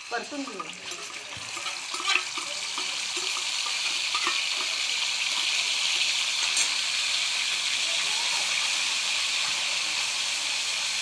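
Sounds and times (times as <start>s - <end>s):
paste sizzling in hot oil: 0.0s - 11.0s
steel spoon tapping and scraping: 0.5s - 6.8s.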